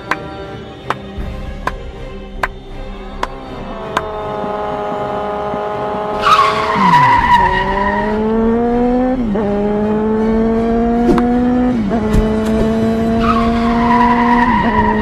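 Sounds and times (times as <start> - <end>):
motorcycle engine accelerating: 3.5 - 15.0
tyre screech: 6.2 - 8.2, 13.1 - 15.0.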